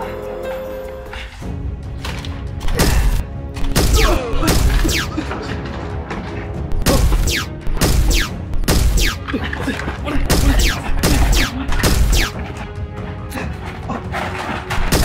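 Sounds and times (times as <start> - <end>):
background music: 0.0 - 15.0
rapid gunshots with ricochet whine: 6.8 - 9.2, 10.2 - 12.4.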